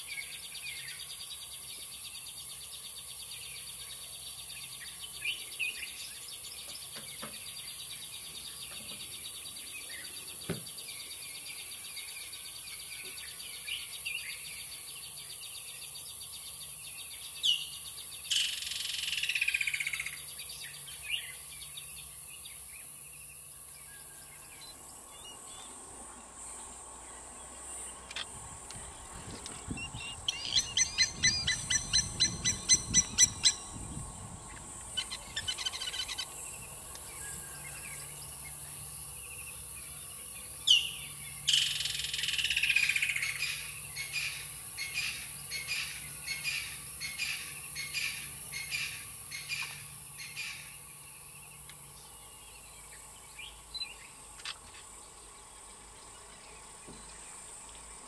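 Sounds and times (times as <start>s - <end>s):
high-pitched insect hiss: 0.0s - 26.8s, 27.8s - 58.0s
wild birds calling: 29.8s - 33.8s, 34.5s - 55.4s.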